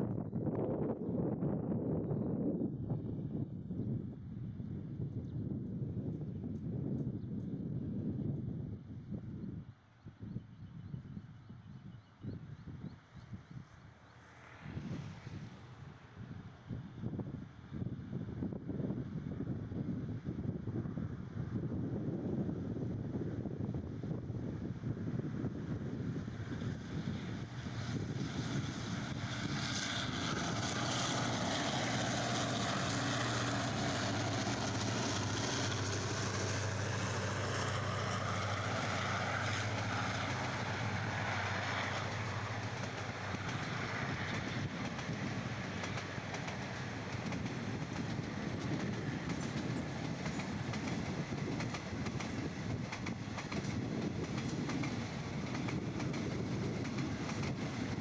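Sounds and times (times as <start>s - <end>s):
diesel locomotive engine drone: 0.0s - 58.0s
train wheels clacking on rail joints: 41.9s - 58.0s.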